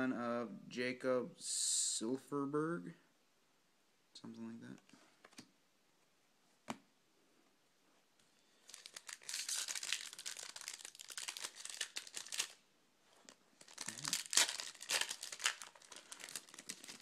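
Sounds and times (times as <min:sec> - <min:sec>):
card pack wrapper tearing: 0:08.6 - 0:12.6, 0:13.6 - 0:17.0.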